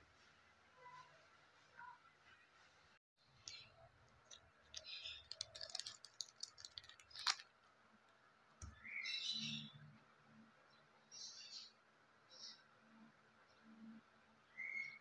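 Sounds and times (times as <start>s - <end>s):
plastic bag crinkling: 3.4s - 7.7s.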